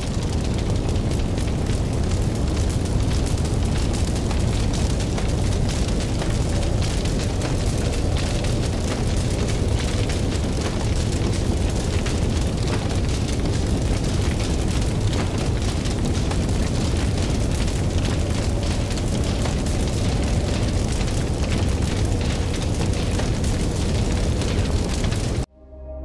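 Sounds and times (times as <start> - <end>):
fire roaring and crackling: 0.0 - 25.5.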